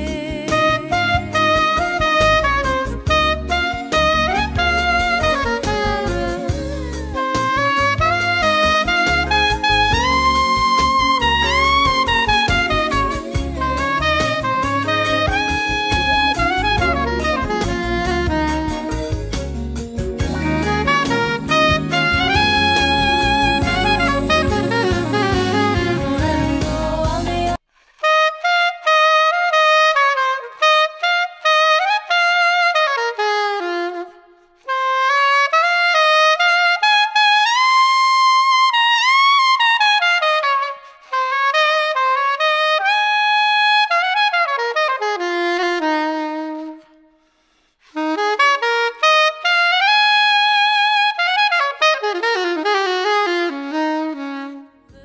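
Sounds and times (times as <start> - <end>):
full band backing: 0.0 - 27.6
soprano saxophone solo: 0.0 - 55.0.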